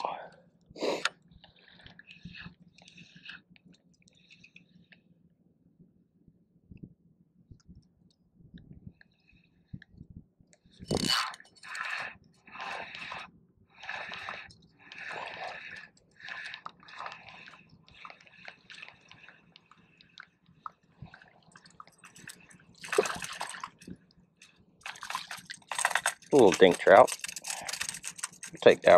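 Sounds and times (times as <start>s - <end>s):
fishing reel whirring: 10.8s - 18.2s, 24.8s - 28.9s
fish splashing: 11.2s - 23.9s, 24.8s - 28.4s.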